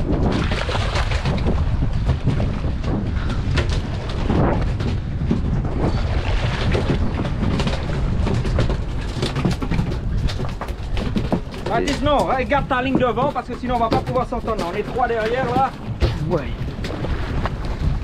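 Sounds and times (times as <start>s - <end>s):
water splashes: 0.0s - 18.0s
wind rumbling on microphone: 0.0s - 18.0s
knocks: 6.8s - 17.0s.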